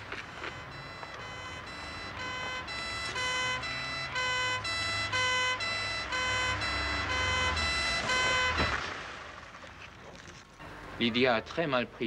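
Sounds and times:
two-tone siren: 0.0 - 8.8
low engine rumble: 0.0 - 12.0.

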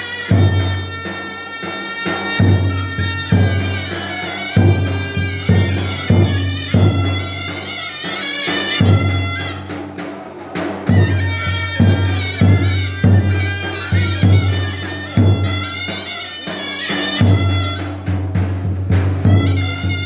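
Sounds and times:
reedy bagpipe-like wind melody: 0.0 - 9.7, 11.0 - 18.1, 19.3 - 20.0
drum beating: 0.0 - 20.0.

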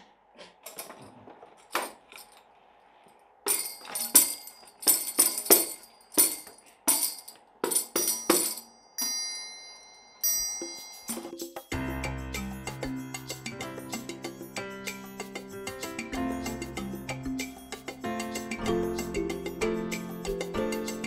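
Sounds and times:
triangle ringing: 3.5 - 15.6
tambourine steady beat: 10.3 - 21.0.

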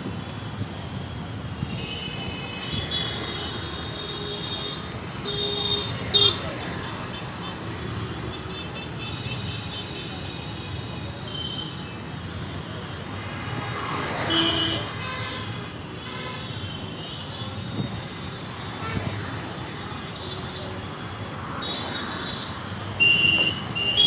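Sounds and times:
city road traffic: 0.0 - 24.0.

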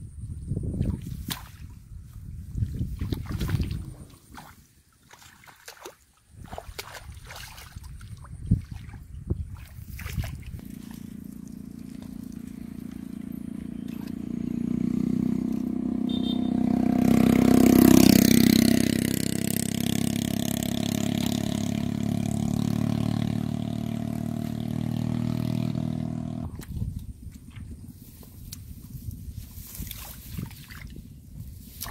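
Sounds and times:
vehicle engine running: 10.5 - 26.6.

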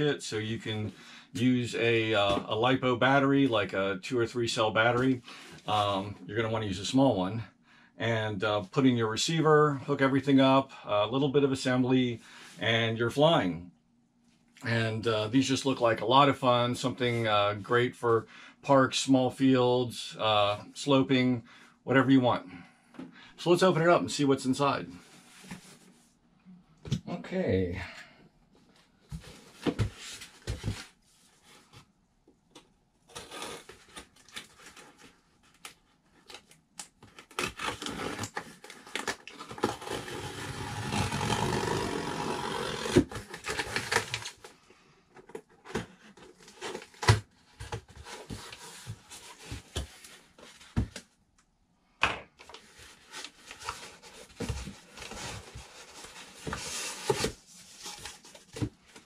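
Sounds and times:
packing tape tearing: 37.0 - 44.4
cardboard flaps scraping: 37.3 - 44.4.

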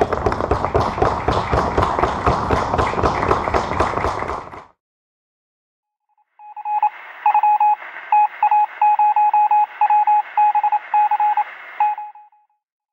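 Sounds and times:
morse code beeps: 6.4 - 12.5
radio static hiss: 6.8 - 12.0.

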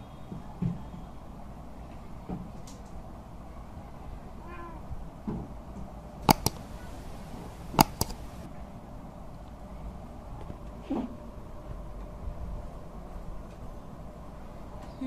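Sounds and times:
cat meowing faintly: 4.4 - 4.9
sharp clicks: 6.2 - 8.5.

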